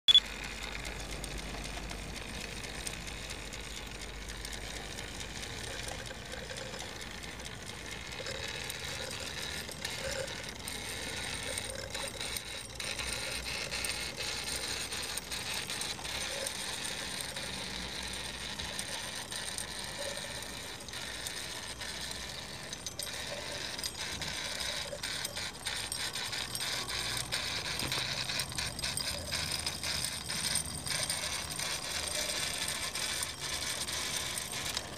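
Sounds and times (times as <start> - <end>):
toy steam engine clattering: 0.1 - 34.9.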